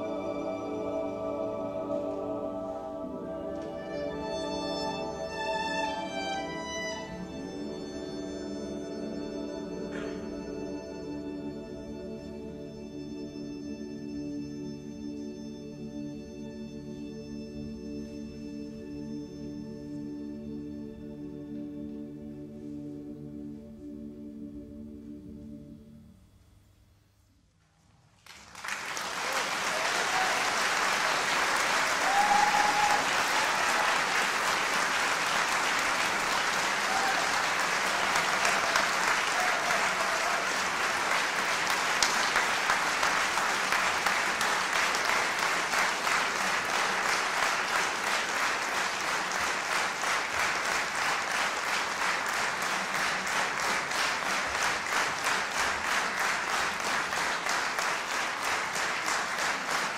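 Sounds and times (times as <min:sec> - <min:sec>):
audience clapping in unison: 0:28.1 - 0:59.9
audience applauding: 0:28.2 - 0:59.9.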